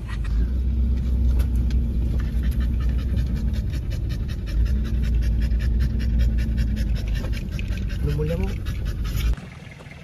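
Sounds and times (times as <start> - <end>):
vehicle engine low drone: 0.0 - 10.0
dog panting: 2.0 - 9.4.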